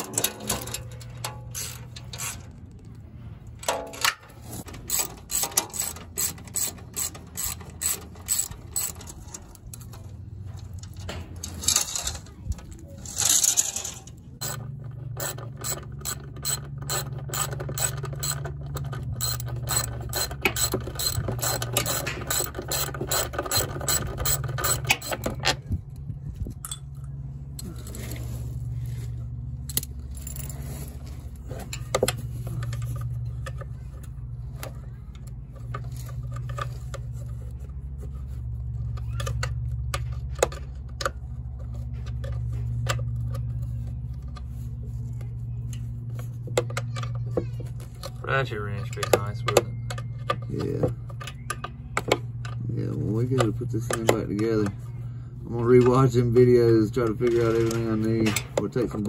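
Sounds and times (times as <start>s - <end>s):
steady low hum: 0.0s - 59.0s
ratchet wrench clicking: 4.0s - 9.8s, 13.2s - 25.3s.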